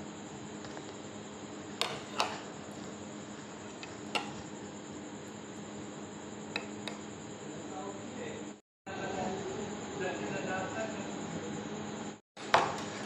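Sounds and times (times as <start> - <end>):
steady background hum: 0.0 - 13.0
spoon knocking against plate: 1.8 - 2.5, 3.8 - 4.4, 12.5 - 12.9.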